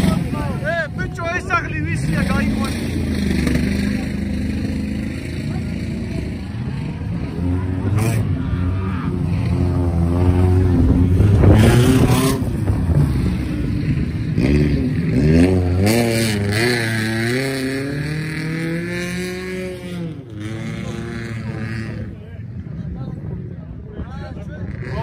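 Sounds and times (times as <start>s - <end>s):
engine revving hard: 1.9s - 22.1s.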